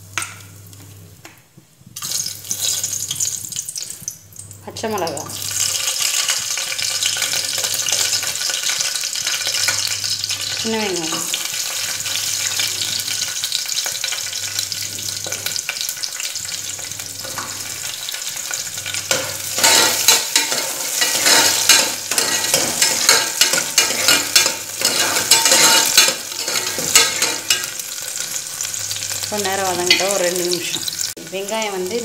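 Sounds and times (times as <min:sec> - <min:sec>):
food sizzling in hot oil: 0:01.9 - 0:32.0
spoon scraping a pot: 0:19.0 - 0:27.9.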